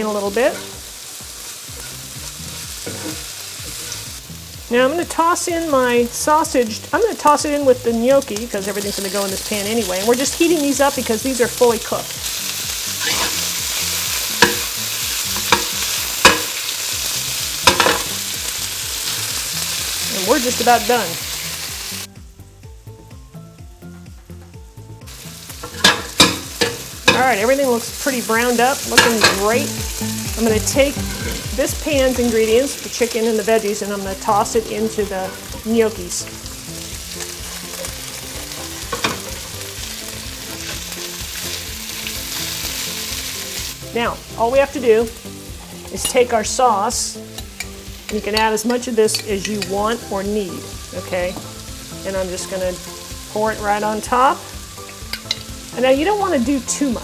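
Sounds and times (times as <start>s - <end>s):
food sizzling in a skillet: 0.0s - 57.0s
spatula scraping pan: 0.4s - 0.8s, 1.7s - 4.2s, 12.9s - 16.6s, 28.5s - 33.2s, 34.2s - 35.9s
pan knocking: 25.6s - 27.4s, 30.4s - 31.7s.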